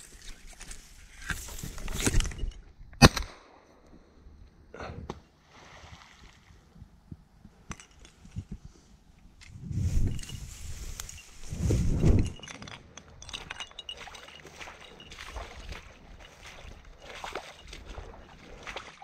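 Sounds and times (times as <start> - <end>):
dry reeds rustling: 9.4 - 18.8.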